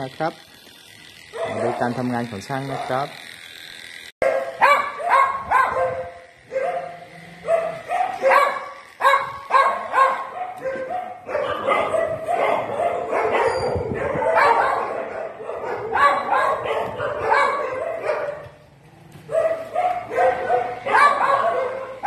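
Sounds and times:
dog yelping barks: 0:01.3 - 0:01.9, 0:04.2 - 0:18.6, 0:19.3 - 0:22.0.

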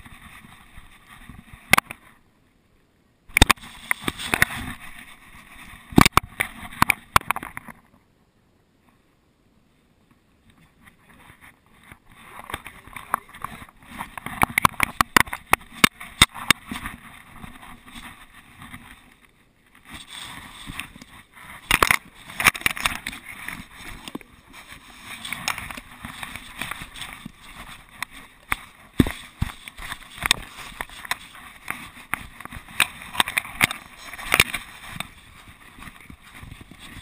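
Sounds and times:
clicks against camera housing: 0:03.3 - 0:03.6
camera housing rustling: 0:03.3 - 0:07.8, 0:12.4 - 0:19.1, 0:19.8 - 0:37.0.

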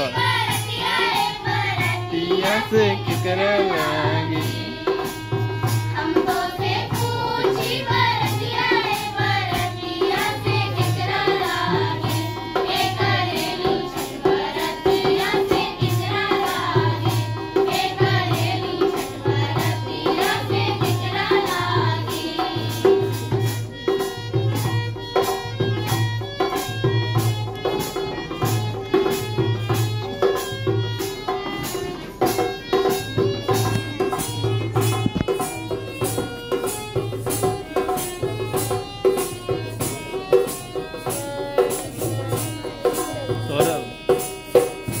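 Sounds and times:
children singing in unison: 0:00.0 - 0:25.0
hand drum beat: 0:00.0 - 0:45.0
harmonium held notes: 0:00.0 - 0:45.0.

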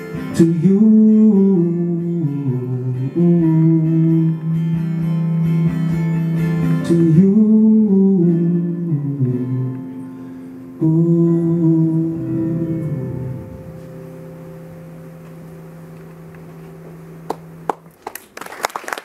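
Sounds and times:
acoustic guitar strumming: 0:00.0 - 0:17.9
person singing wordless melody: 0:00.1 - 0:05.3, 0:06.8 - 0:14.6.

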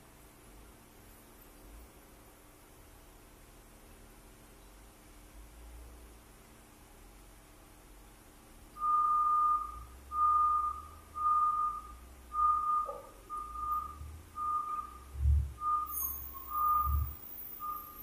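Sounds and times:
low thuds: 0:15.1 - 0:15.7
short high beeps: 0:15.6 - 0:18.0.

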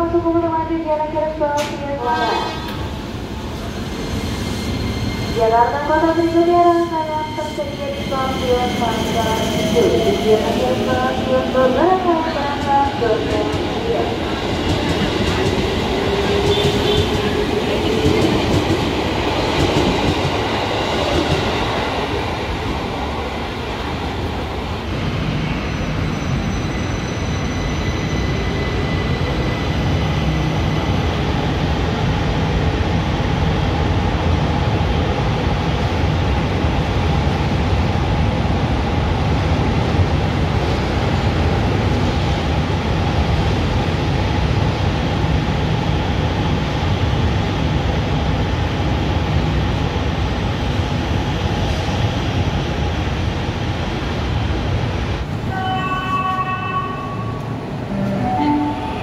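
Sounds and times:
train cars rumbling: 0:01.6 - 0:29.9
high inverter tones: 0:55.5 - 0:59.0.

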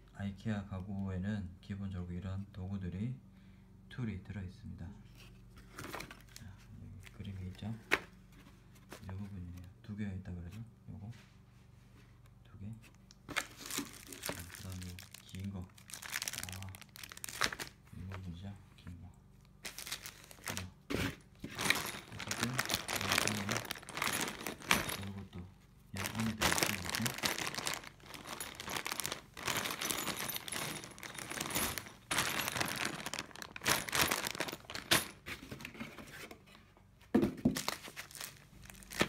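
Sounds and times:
plastic packaging crinkling: 0:13.3 - 0:18.1, 0:19.6 - 0:20.8, 0:21.4 - 0:25.3, 0:26.0 - 0:35.2, 0:37.5 - 0:39.0
paper sheet rustling: 0:19.6 - 0:25.2, 0:26.0 - 0:35.6
hardware pieces clinking: 0:21.5 - 0:25.3, 0:26.0 - 0:35.3.

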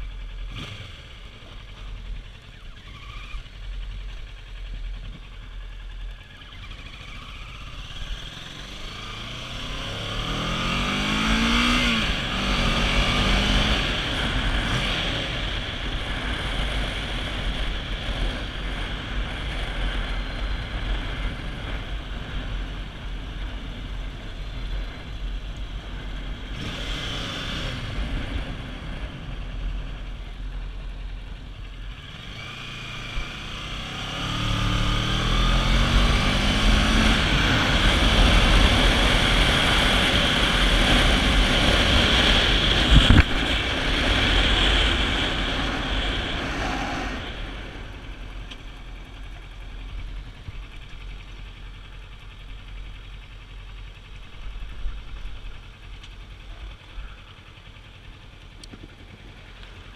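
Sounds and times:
motorcycle engine: 0:00.0 - 0:59.9
wind rush on microphone: 0:37.2 - 0:48.0.

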